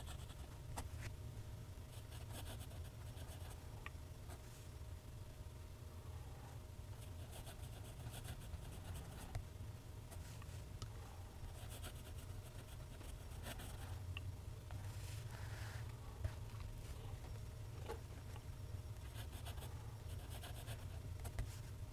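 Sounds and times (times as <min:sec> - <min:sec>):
low steady hum: 0:00.0 - 0:21.9.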